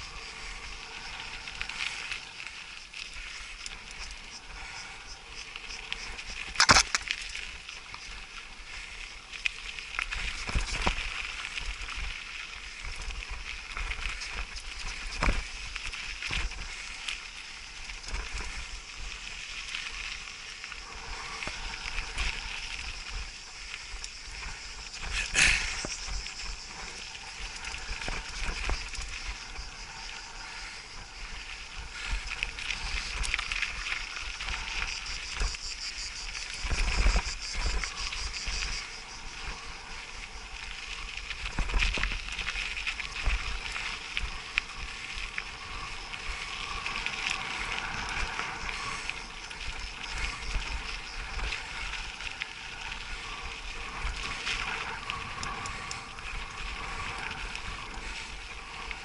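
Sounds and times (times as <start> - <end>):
bike rattling: 0.0 - 59.0
wind rumbling on microphone: 0.0 - 59.0.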